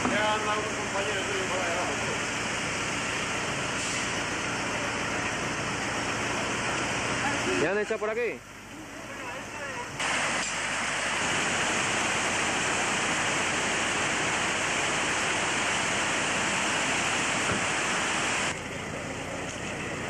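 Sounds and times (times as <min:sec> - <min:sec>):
loud steady rushing noise: 0:10.0 - 0:18.6.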